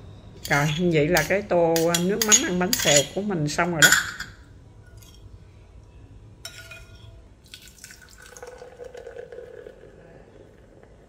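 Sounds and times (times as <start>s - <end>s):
faint steady hum: 0.0s - 11.0s
spoon stirring liquid in bowl: 0.4s - 4.2s, 6.4s - 7.2s.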